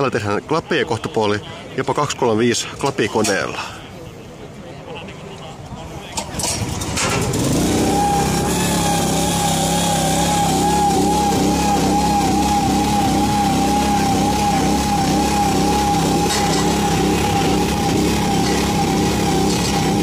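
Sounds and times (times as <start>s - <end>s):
engine running: 6.1s - 20.0s
high machine whine: 7.2s - 20.0s.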